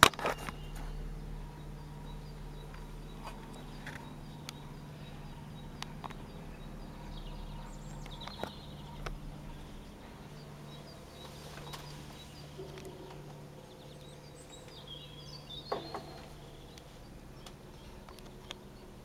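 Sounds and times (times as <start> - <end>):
propeller aircraft engine drone: 0.0 - 19.0
small birds chirping: 0.0 - 19.0.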